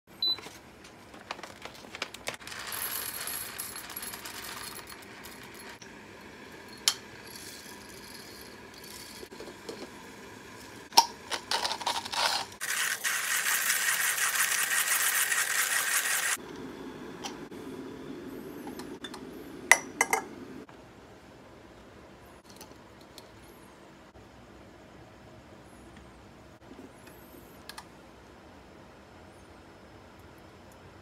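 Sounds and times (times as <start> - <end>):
steady hissing noise: 12.4 - 31.0.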